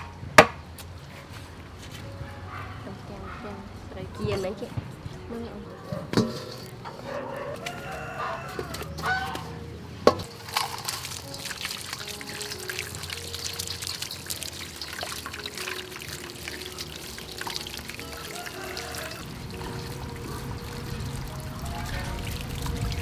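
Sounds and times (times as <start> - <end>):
rooster crowing: 7.0 - 9.6, 18.0 - 20.1
tap water splashing in metal bowl: 10.1 - 23.0.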